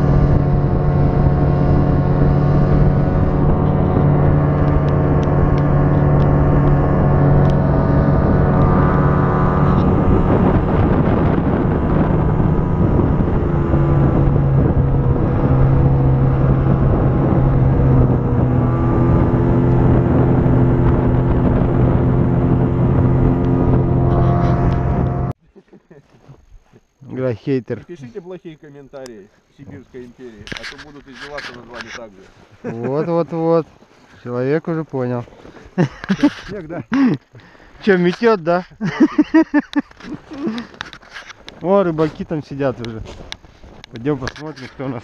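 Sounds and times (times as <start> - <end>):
snowmobile engine running: 0.0 - 25.4, 38.0 - 45.0.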